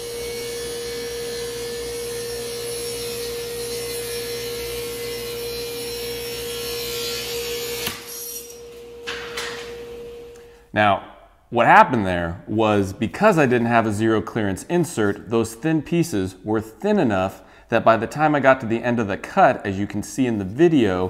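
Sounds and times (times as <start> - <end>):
table saw cutting wood: 0.0 - 10.3.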